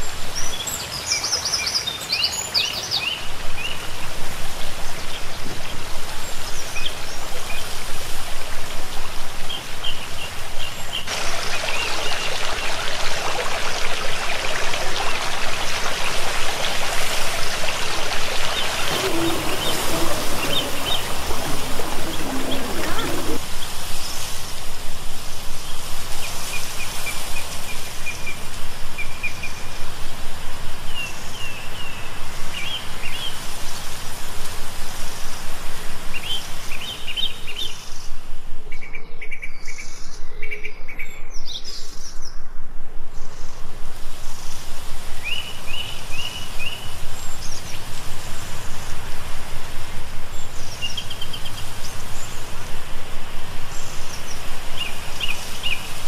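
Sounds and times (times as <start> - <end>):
water rushing in stone channel: 0.0 - 29.1
small birds chirping: 18.6 - 23.5.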